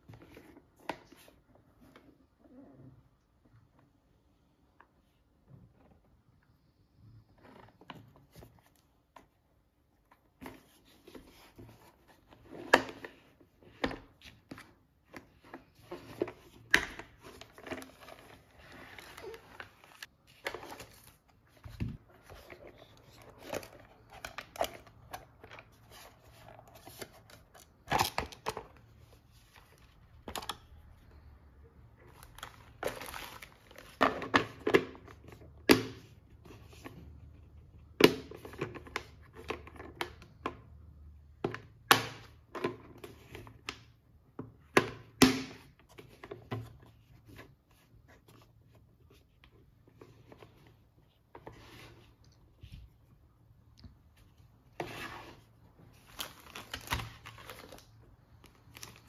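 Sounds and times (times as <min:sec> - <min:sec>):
packaging crinkling and tearing: 0:32.0 - 0:34.0, 0:55.9 - 0:59.0.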